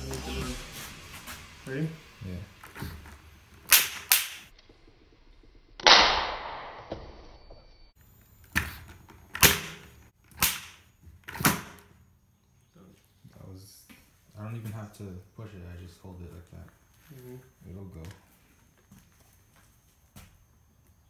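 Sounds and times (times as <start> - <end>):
loud pop and hiss: 0.0 - 4.5, 5.8 - 6.9, 10.4 - 11.8
sharp crackling spark snaps: 0.0 - 4.8, 5.8 - 6.8, 9.3 - 10.9.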